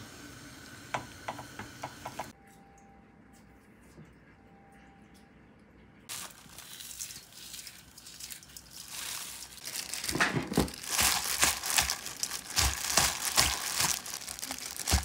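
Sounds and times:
packaging crinkling: 6.1 - 15.0.

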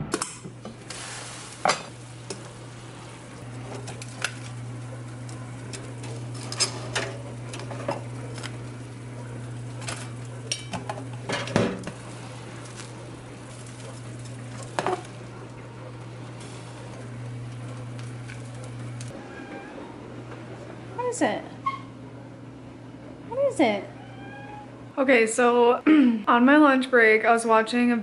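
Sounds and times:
steady low hum: 0.0 - 19.2
water boiling and bubbling: 0.4 - 19.2
metal tongs clinking on saucepan: 9.9 - 11.5.

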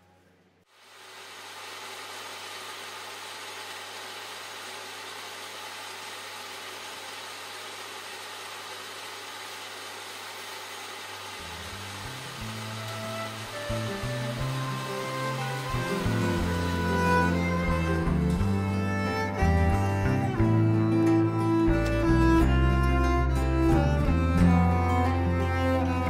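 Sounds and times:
power tool motor running: 3.3 - 19.8
music: 11.7 - 26.0.

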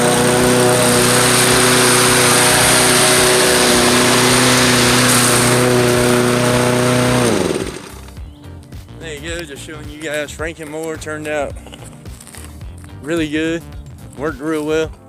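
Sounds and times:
lawn mower engine running: 0.0 - 8.2.

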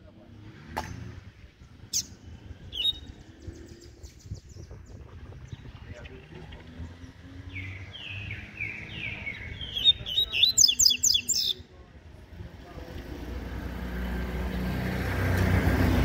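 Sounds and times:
passing vehicle: 0.0 - 16.0
bird whistling and twittering: 1.9 - 6.2, 7.5 - 11.6.

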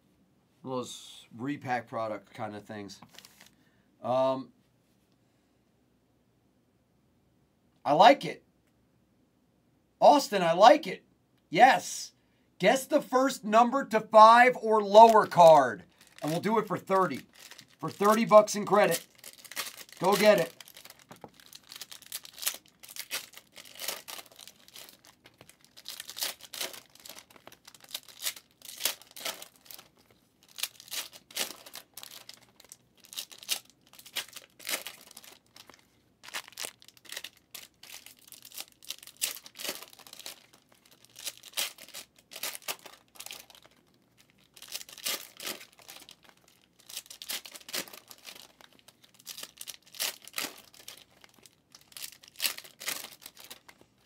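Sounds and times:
wrappers tearing and crinkling: 14.9 - 54.0.

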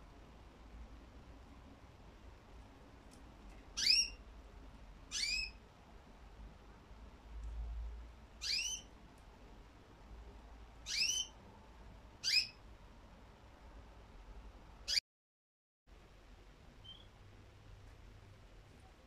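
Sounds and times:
budgerigar chirps: 3.8 - 4.2, 5.1 - 5.6, 8.4 - 8.9, 10.8 - 11.4, 12.2 - 12.6, 16.8 - 17.1.

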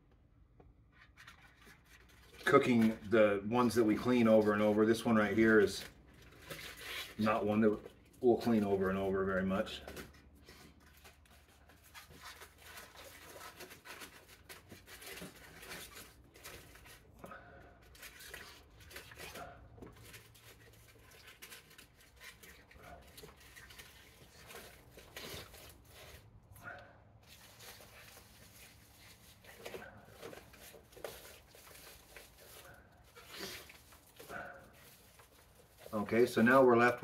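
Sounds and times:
wire grill scraping plastic tub: 1.0 - 17.2, 17.9 - 37.0
aluminium foil crinkling: 1.0 - 37.0.

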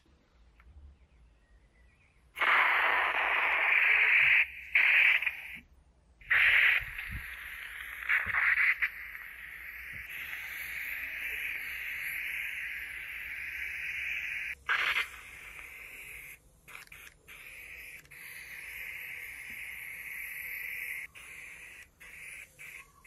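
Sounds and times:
air hissing bursts: 2.4 - 5.6, 6.2 - 23.0
steady air hiss: 2.4 - 23.0.

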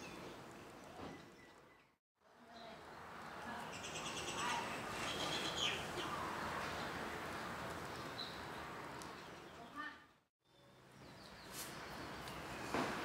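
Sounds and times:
small birds chirping: 2.6 - 12.4.

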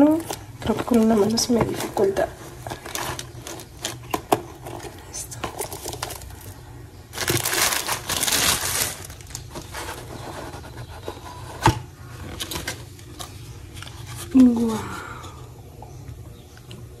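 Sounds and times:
package tearing and rustling: 0.1 - 10.6.

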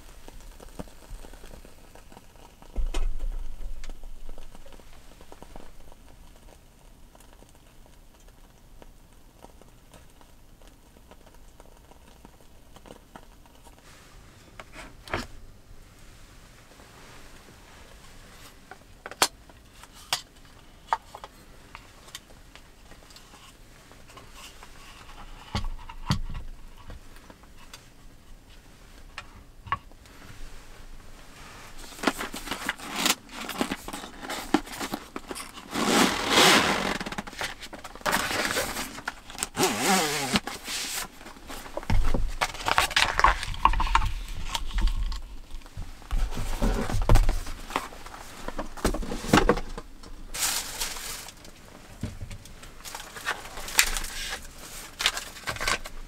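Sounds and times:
plastic wrap crinkling: 0.0 - 13.9, 30.0 - 56.0.

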